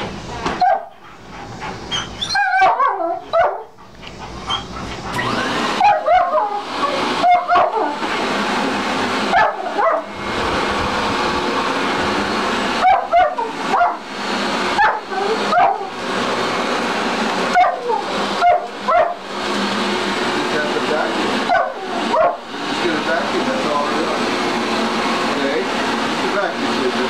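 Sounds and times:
vacuum cleaner motor drone: 0.0 - 27.0
dog barking: 0.6 - 1.0, 2.3 - 3.8, 5.8 - 8.0, 9.3 - 10.1, 12.8 - 14.0, 14.7 - 16.0, 17.5 - 19.2, 21.5 - 22.4.

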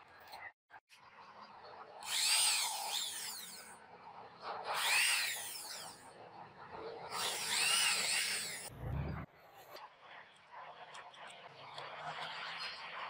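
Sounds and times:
electric hand drill whining: 2.0 - 3.8, 4.7 - 6.0, 7.1 - 8.7.

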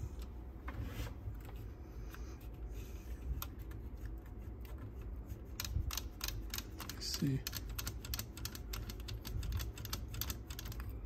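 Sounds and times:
faint low hum: 0.0 - 11.0
fingers clicking cassette mechanism: 4.6 - 10.9.

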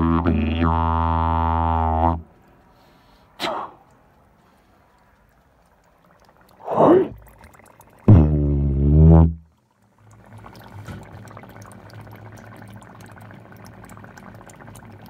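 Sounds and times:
low tuba note: 0.0 - 2.3, 8.1 - 9.4
dry ice bubbling in water: 4.8 - 15.0.

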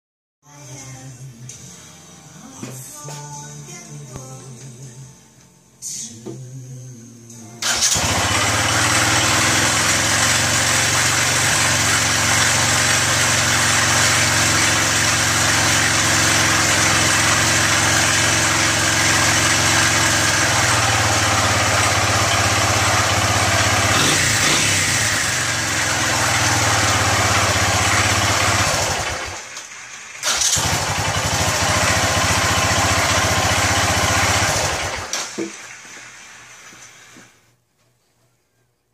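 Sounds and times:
electric starter cranking: 7.6 - 35.4
single-cylinder engine running: 7.6 - 35.8.

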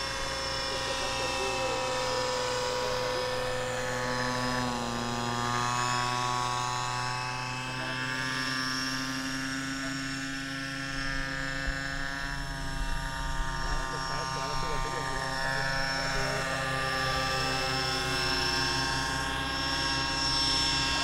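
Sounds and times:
small model engine running: 0.0 - 21.0.

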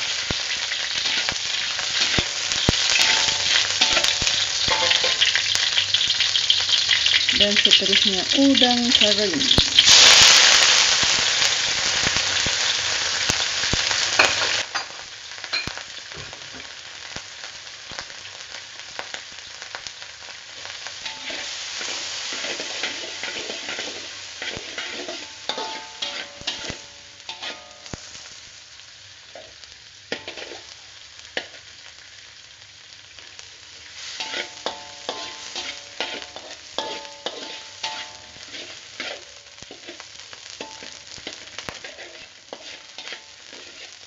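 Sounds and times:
food sizzling in hot oil: 0.0 - 44.0
metal spatula scraping wok: 0.1 - 11.5, 21.0 - 28.3, 29.4 - 30.8, 34.0 - 44.0.

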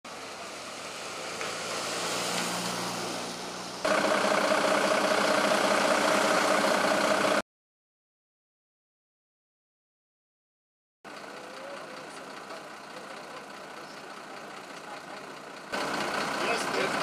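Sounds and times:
car driving past: 0.1 - 7.4
engine droning steadily: 0.1 - 7.4, 11.1 - 17.0.

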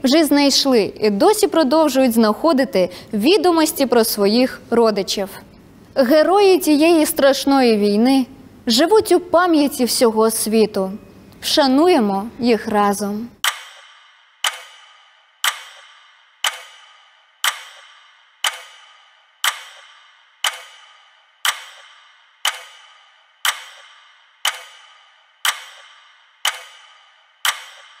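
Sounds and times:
clock ticking: 13.4 - 28.0.

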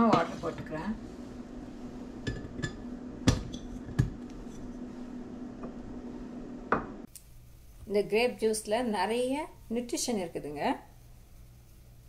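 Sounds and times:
glassware clinking and knocking: 2.3 - 4.2.

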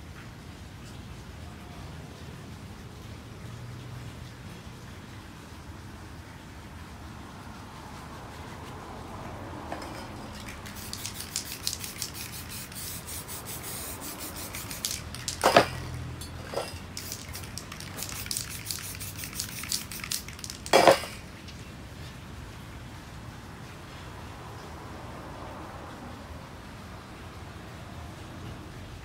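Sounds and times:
spray paint can spraying: 9.7 - 21.2.

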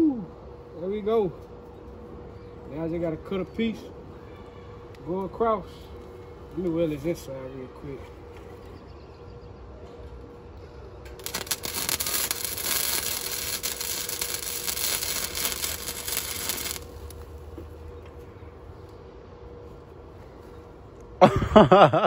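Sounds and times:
steady low hum: 0.0 - 22.0
welding arc crackling: 11.1 - 17.5.

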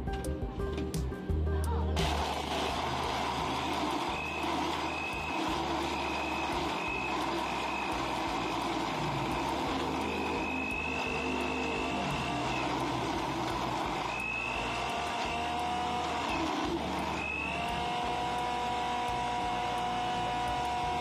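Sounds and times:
blender running: 2.0 - 21.0.

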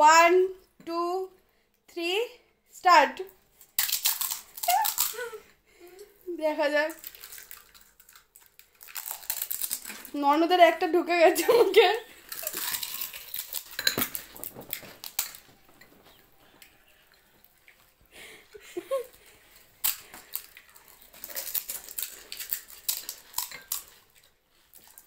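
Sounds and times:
crisp shells cracking and crunching: 3.6 - 5.3, 6.9 - 10.2, 12.1 - 18.1, 19.0 - 25.0.

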